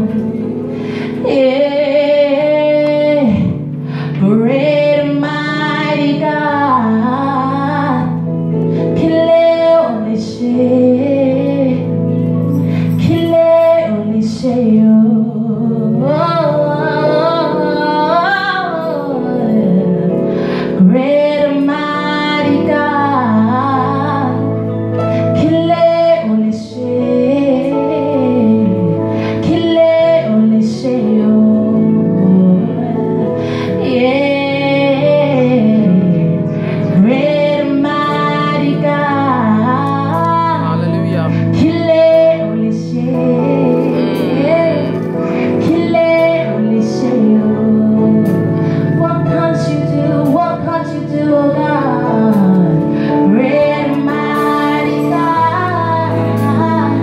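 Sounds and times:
sustained instrumental chords: 0.0 - 57.0
woman singing into a microphone: 0.0 - 57.0.

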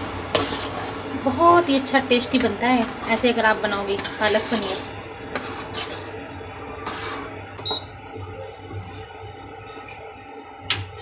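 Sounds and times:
cooktop humming: 0.0 - 11.0
metal spoon scraping a pot: 0.3 - 11.0.

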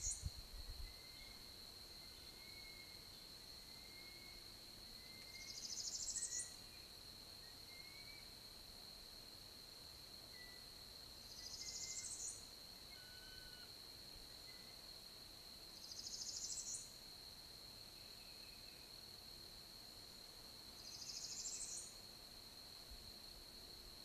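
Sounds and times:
faint chirps of other birds: 0.0 - 8.4, 10.3 - 14.9, 15.7 - 17.0, 17.9 - 19.0, 20.8 - 22.0.

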